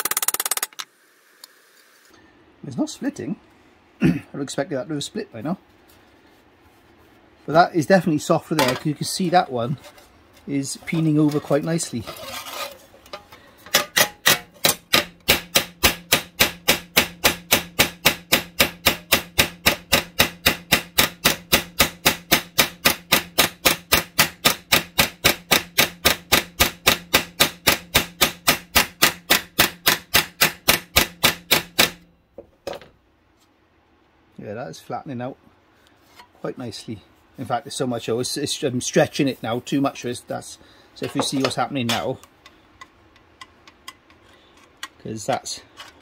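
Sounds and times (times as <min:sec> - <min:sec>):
hammer striking steel sheet: 0:13.7 - 0:32.0.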